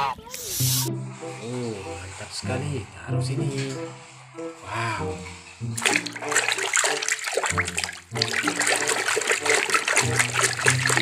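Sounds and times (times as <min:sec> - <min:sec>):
water splashing in a tub: 0:05.8 - 0:11.0.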